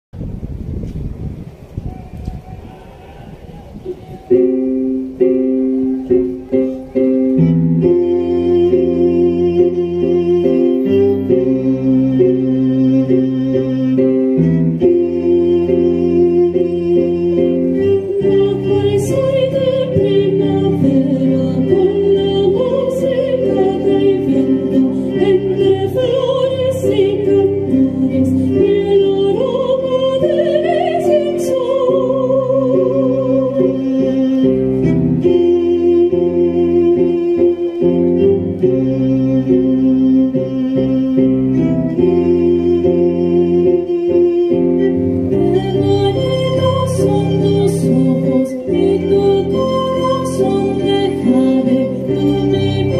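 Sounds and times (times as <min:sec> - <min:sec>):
electronic keyboard chords: 0:03.4 - 0:52.9
violin playing: 0:03.8 - 0:52.9
sopranos singing with vibrato: 0:14.8 - 0:38.5, 0:45.3 - 0:52.9.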